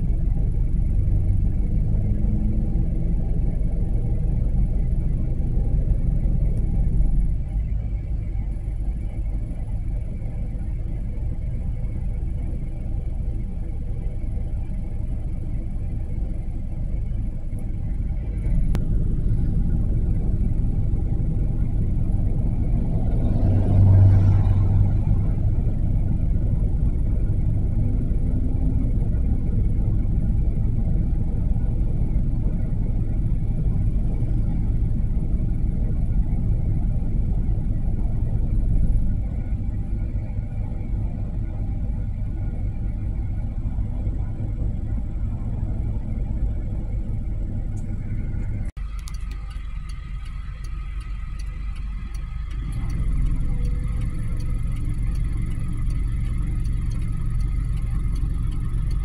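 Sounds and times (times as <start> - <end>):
road traffic rumble: 0.0 - 59.0
bus passing: 18.0 - 28.9.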